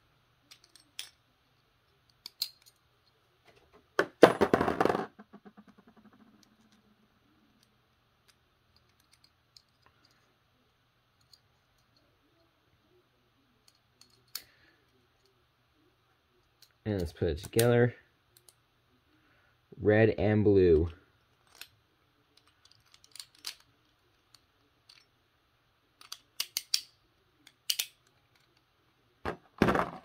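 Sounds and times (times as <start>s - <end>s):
plastic part clattering and rattling: 22.4s - 25.0s
small plastic clicks: 22.4s - 25.1s, 26.0s - 28.6s.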